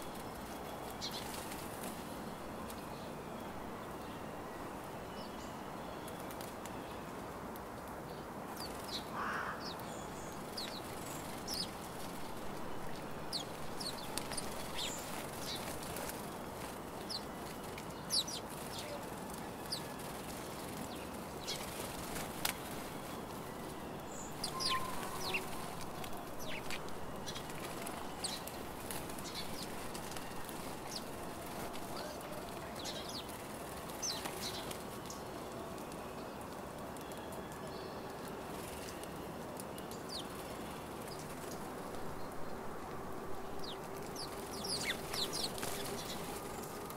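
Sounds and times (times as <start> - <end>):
sparrows chirping: 0.0 - 7.2, 8.0 - 35.3, 39.8 - 46.8
steady background noise: 0.0 - 46.9.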